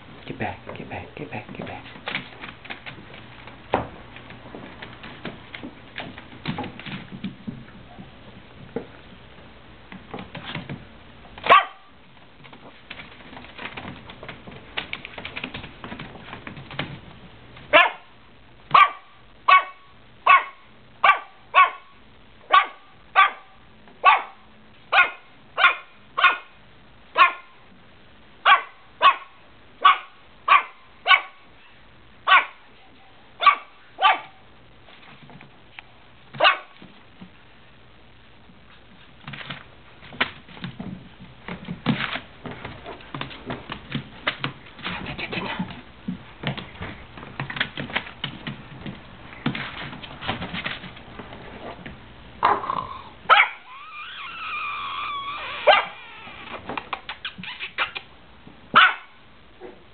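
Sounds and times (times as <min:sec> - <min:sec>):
small dog barking: 0:11.4 - 0:12.0, 0:17.7 - 0:27.6, 0:28.4 - 0:32.7, 0:33.4 - 0:34.5, 0:36.4 - 0:36.8, 0:53.3 - 0:53.8, 0:55.6 - 0:56.0, 0:58.7 - 0:59.8
soft scuffling: 0:34.6 - 0:52.2.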